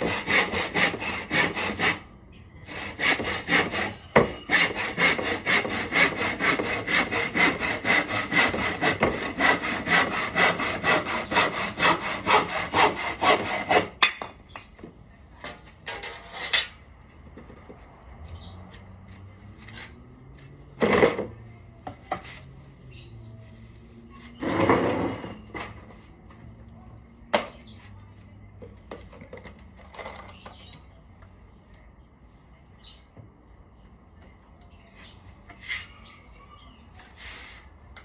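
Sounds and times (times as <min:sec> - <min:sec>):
wood scraping: 0:00.0 - 0:02.0, 0:02.7 - 0:14.0.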